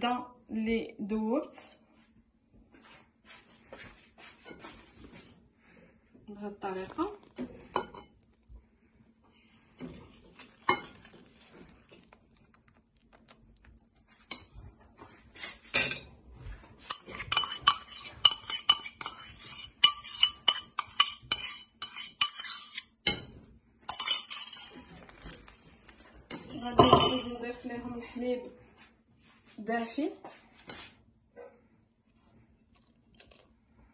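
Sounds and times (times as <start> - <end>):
whisk clinking against glass bowl: 10.4 - 11.2, 16.8 - 23.2.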